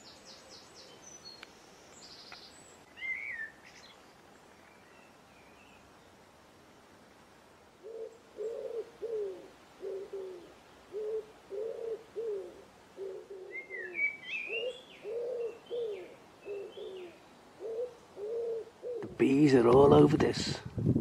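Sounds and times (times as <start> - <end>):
small bird chirping: 0.0 - 5.8
pigeon cooing: 7.8 - 19.2.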